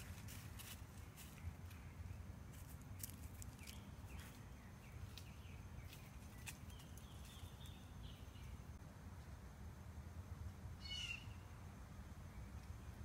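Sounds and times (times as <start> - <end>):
faint bird chirps: 3.5 - 8.8, 10.8 - 11.6.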